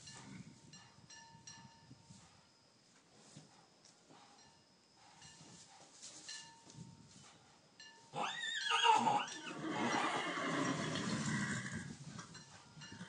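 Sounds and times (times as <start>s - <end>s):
foal whinnying: 8.2s - 11.7s.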